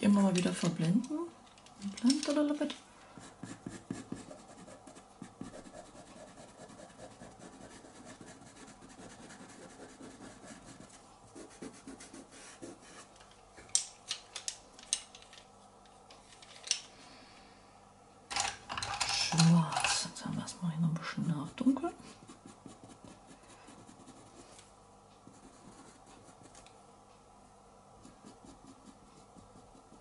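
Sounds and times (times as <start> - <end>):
pencil scratching on paper: 3.2 - 13.1, 21.2 - 24.5, 25.2 - 26.6, 28.0 - 30.0.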